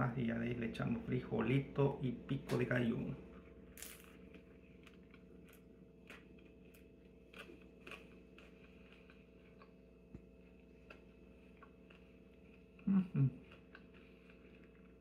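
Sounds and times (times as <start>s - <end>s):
low room hum: 0.0s - 15.0s
chewing with mouth clicks: 4.2s - 15.0s.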